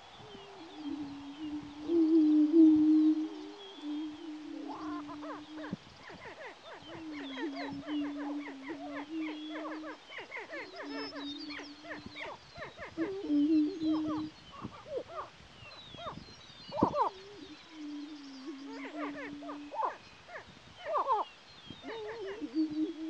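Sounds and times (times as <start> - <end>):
bird cackles and whoops: 4.6 - 15.3.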